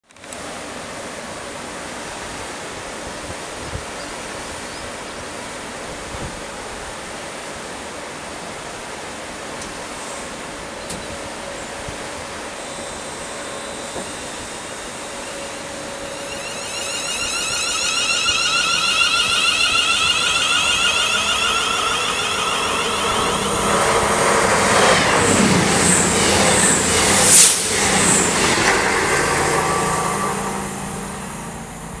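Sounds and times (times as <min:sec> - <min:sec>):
train rushing past: 0:05.5 - 0:32.0
electric train motors whining: 0:11.3 - 0:32.0.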